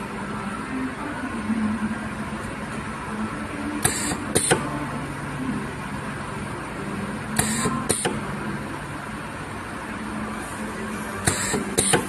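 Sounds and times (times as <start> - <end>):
machine humming: 0.0 - 12.0.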